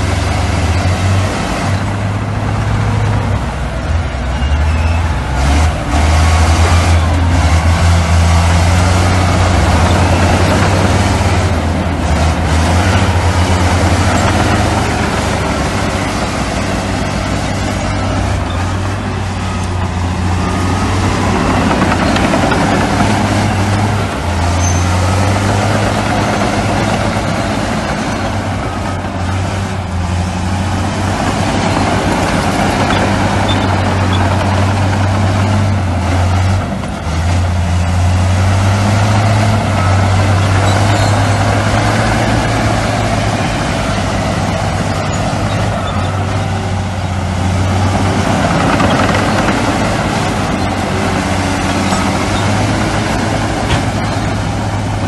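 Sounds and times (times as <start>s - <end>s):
heavy diesel machinery engine drone: 0.0s - 55.0s.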